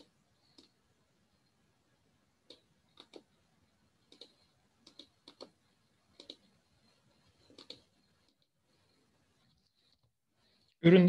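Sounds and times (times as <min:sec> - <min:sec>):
computer mouse and keyboard clicks: 0:00.0 - 0:00.8, 0:02.5 - 0:03.3, 0:04.0 - 0:06.5, 0:07.4 - 0:08.5.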